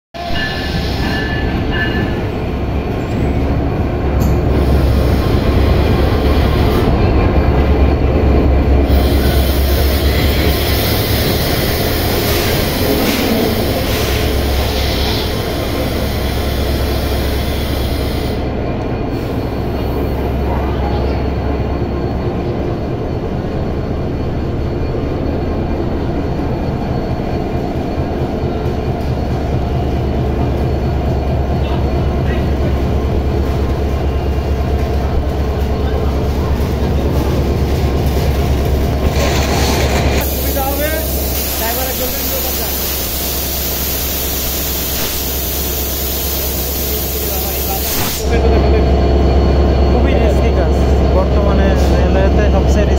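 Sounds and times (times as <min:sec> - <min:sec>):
diesel locomotive rumbling: 0:00.2 - 0:52.9
rushing hiss: 0:40.2 - 0:48.3.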